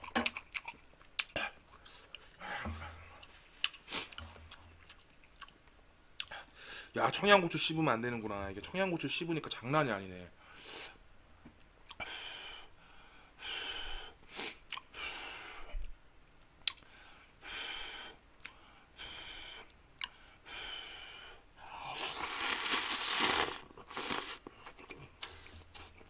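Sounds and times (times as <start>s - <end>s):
person slurping noodles: 21.8s - 24.5s.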